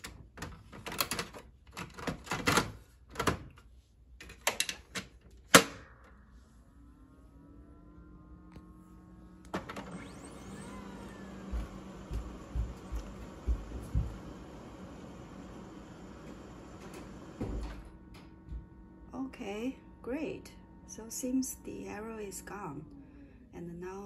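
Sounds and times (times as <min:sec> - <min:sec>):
mechanical whir: 0:06.4 - 0:23.5
printer motor whine: 0:06.6 - 0:23.5.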